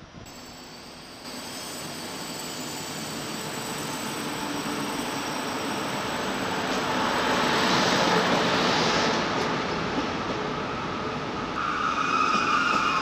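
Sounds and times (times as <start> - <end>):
steady high-pitched tone: 0.3 - 7.4
train wheels rumbling on rails: 0.3 - 13.0.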